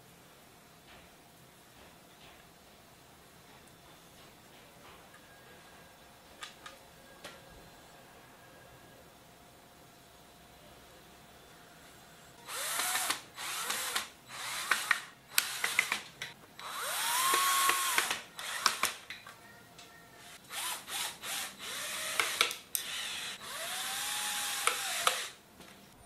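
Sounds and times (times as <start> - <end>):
cordless drill driving screws: 12.4 - 16.0, 16.6 - 19.0, 20.2 - 25.4
sharp clicks: 12.8 - 19.2.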